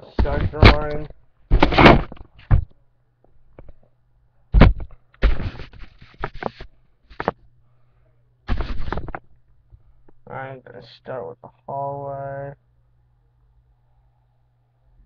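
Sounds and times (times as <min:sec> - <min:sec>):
webcam handling thumps and knocks: 0:00.2 - 0:02.8, 0:04.6 - 0:07.4.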